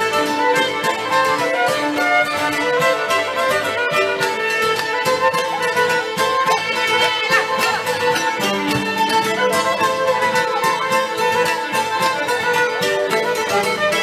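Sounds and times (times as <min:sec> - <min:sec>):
amplified violin melody: 0:00.0 - 0:14.0
guitar: 0:00.0 - 0:14.0
steady beat: 0:04.4 - 0:13.9.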